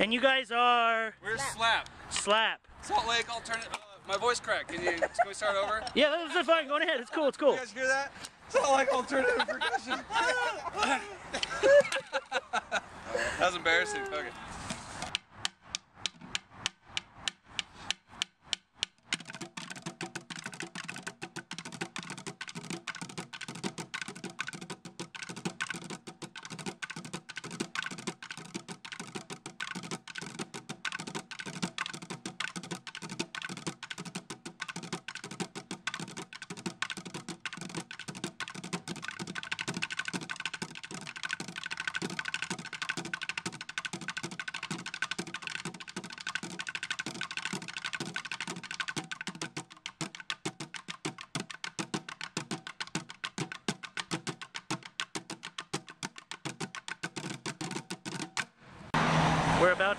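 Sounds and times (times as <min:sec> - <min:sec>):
drumming on buckets and cans: 0:15.1 - 0:58.5.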